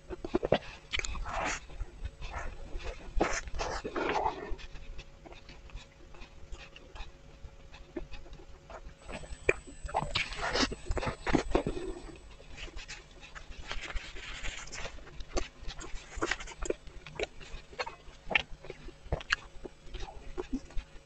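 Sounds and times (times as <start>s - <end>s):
wet chewing: 0.0s - 21.0s
lip smacks and mouth clicks: 0.2s - 1.5s, 9.0s - 20.9s.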